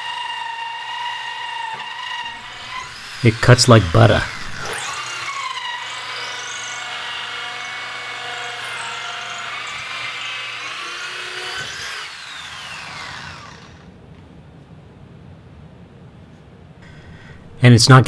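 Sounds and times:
drill motor winding down: 0.0s - 13.9s
electric drill cutting wood: 0.0s - 13.9s.

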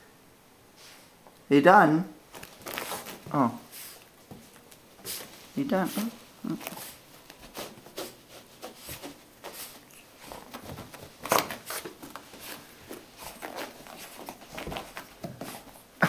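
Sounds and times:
dog rubbing on carpet: 2.6s - 4.1s, 5.0s - 15.8s.

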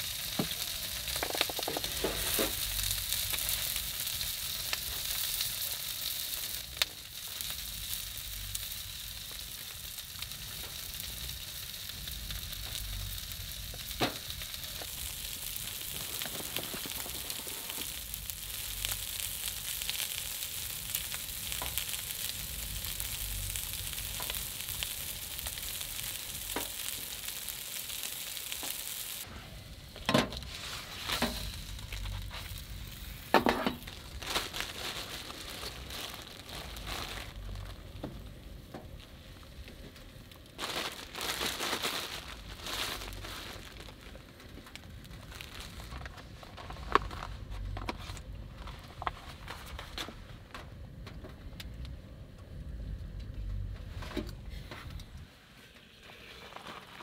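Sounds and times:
meat sizzling: 0.0s - 29.3s, 30.2s - 46.0s.

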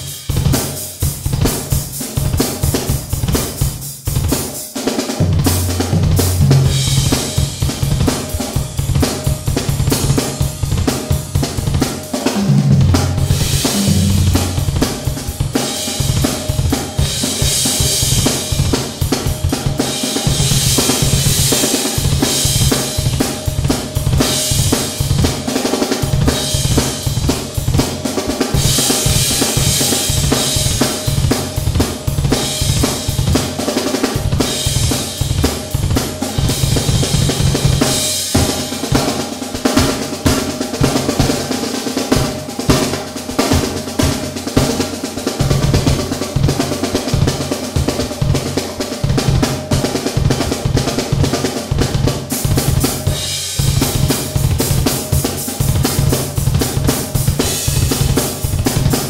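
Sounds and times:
snare drum: 0.0s - 59.0s
cymbals ringing: 12.5s - 16.4s.

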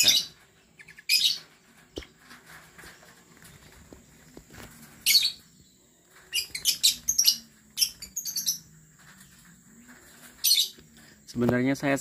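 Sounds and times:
birds chirping shrilly: 0.0s - 1.5s, 4.9s - 5.6s, 6.2s - 8.7s, 10.1s - 11.3s.

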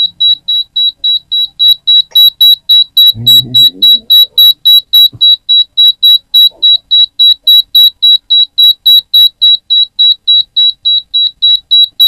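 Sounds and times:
high-pitched buzzer beeping: 0.0s - 12.0s.

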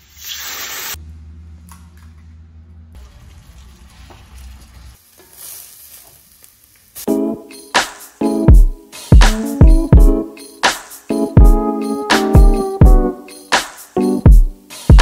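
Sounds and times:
food sizzling in a pan: 0.0s - 1.0s, 3.0s - 7.1s
music: 7.0s - 15.0s.

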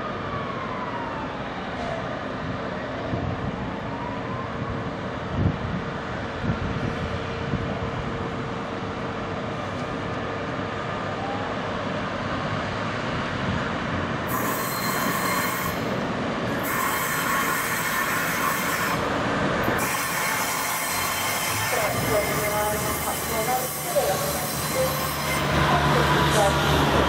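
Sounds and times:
diesel locomotive engine running: 4.8s - 27.0s
train wheels rumbling on rails: 12.8s - 27.0s.

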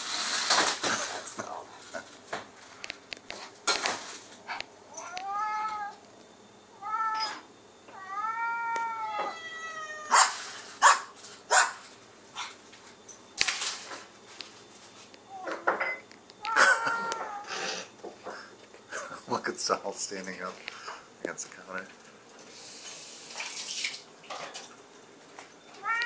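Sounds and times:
cat meowing: 4.9s - 6.0s, 6.8s - 10.3s, 16.4s - 17.8s, 25.8s - 26.0s.

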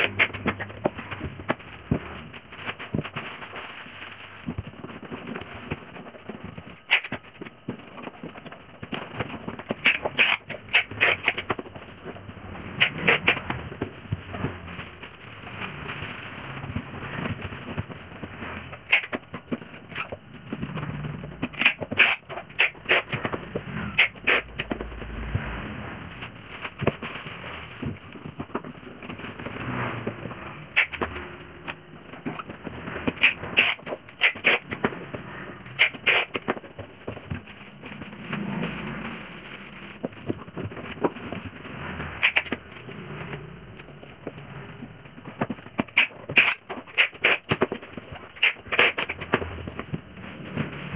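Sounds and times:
plastic bag crinkling: 13.9s - 17.6s.

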